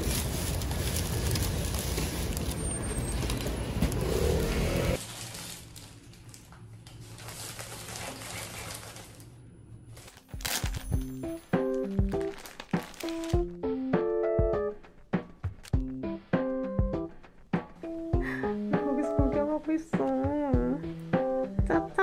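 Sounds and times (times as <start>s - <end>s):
street noise: 0.0s - 5.0s
low indoor hum: 0.0s - 11.5s
piano music: 10.4s - 22.0s.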